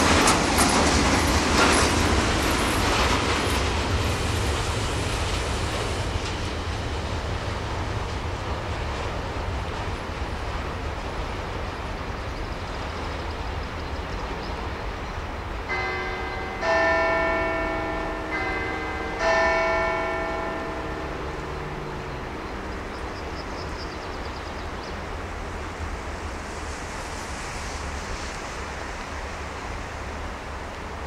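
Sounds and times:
train rumbling: 0.0s - 31.0s
bells ringing: 15.7s - 22.7s.

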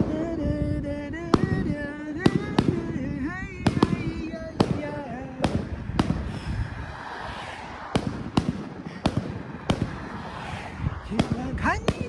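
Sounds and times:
firecrackers banging: 0.0s - 0.3s, 1.3s - 12.0s
wind rushing: 0.0s - 12.0s
bike tyre noise: 3.9s - 11.8s.

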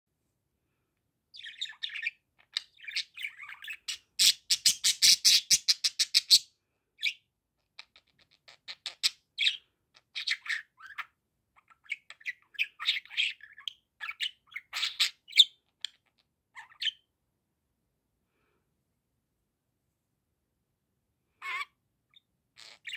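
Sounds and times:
budgerigar chattering and chirping: 1.3s - 7.2s, 7.8s - 17.1s, 21.4s - 22.9s.

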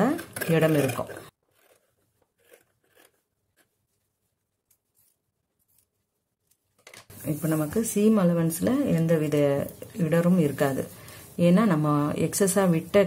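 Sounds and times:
scissors snipping fabric: 0.0s - 3.8s.

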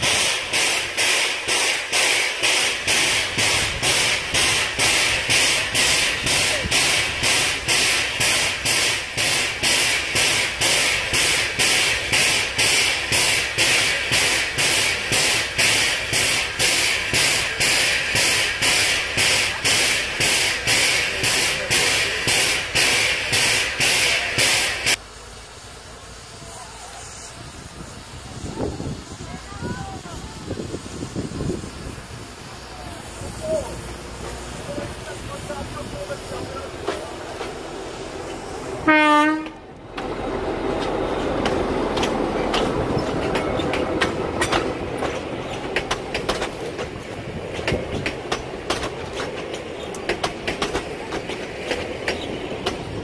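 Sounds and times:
steam locomotive hissing: 0.0s - 53.0s.

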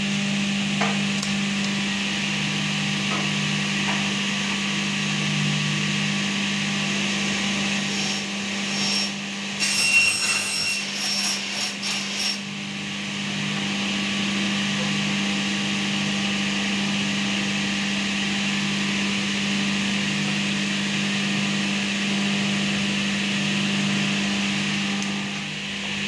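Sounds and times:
electric saw humming: 0.0s - 26.0s
saw blade cutting metal ringing: 8.1s - 12.5s.

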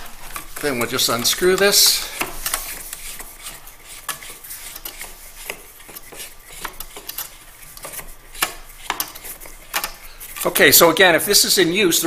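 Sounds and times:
plastic clicking and rubbing: 0.0s - 10.5s.

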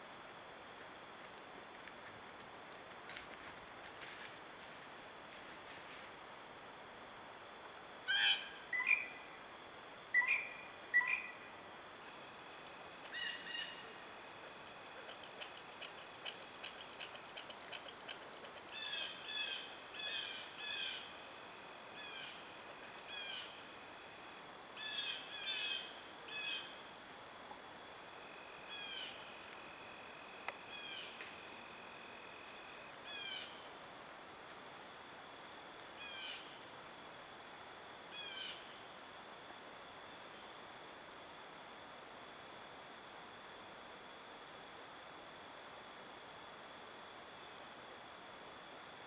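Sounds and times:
wild birds calling: 8.1s - 9.1s, 10.2s - 11.4s, 12.1s - 23.6s.

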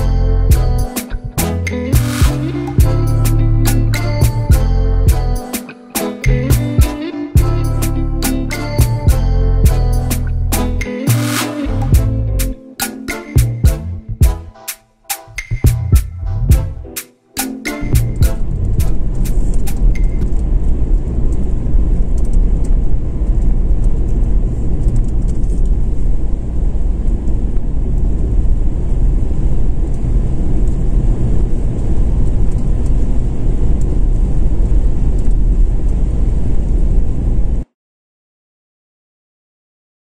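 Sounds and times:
car engine and road noise: 17.8s - 37.4s.

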